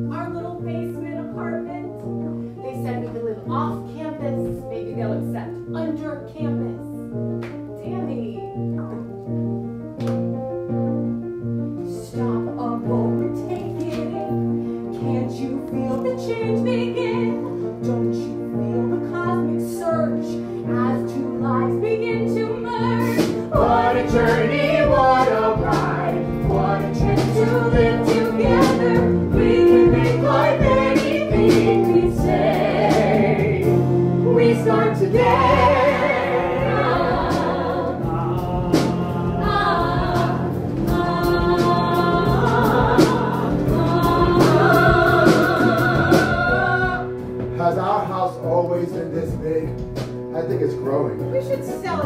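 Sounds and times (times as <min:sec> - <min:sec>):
instrumental accompaniment: 0:00.0 - 0:52.0
ensemble singing: 0:21.8 - 0:48.0.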